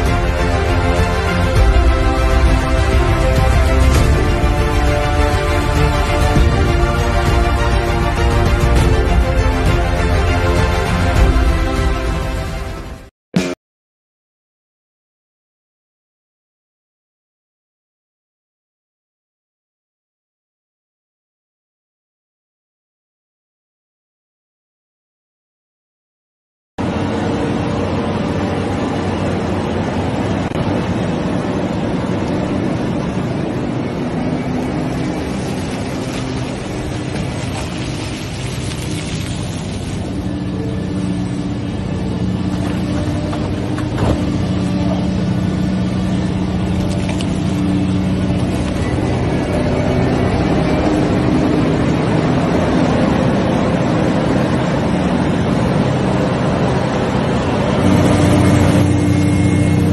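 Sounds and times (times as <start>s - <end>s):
excavator diesel engine running: 26.8s - 59.9s.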